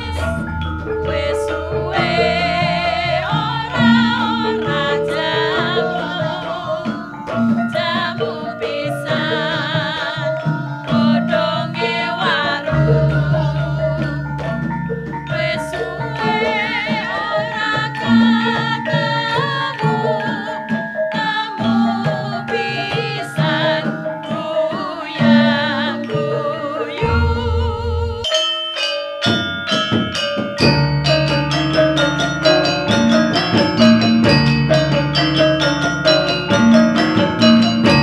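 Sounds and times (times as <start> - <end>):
deep low ringing tone: 0.0 - 4.7, 12.7 - 16.2, 27.0 - 28.3
person singing with vibrato: 0.0 - 28.5, 30.9 - 38.0
gamelan ensemble playing: 0.0 - 38.0.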